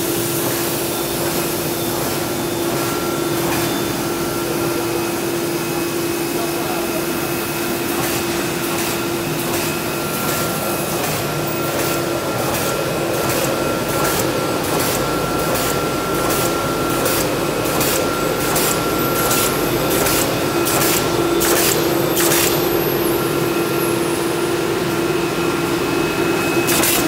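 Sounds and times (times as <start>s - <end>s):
bag making machine running: 0.0s - 27.0s.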